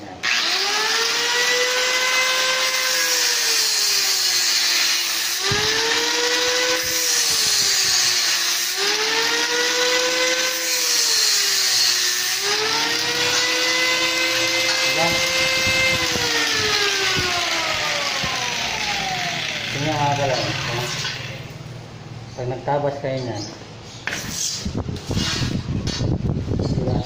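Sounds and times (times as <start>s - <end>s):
angle grinder cutting metal: 0.2s - 21.6s.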